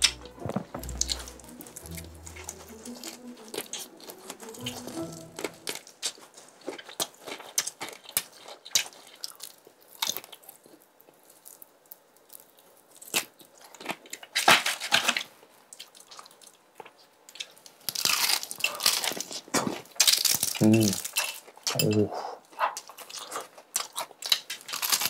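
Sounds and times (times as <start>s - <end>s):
chewing crispy chicken: 0.0s - 25.0s
crispy chicken torn apart crackling: 6.6s - 21.7s, 22.7s - 25.0s.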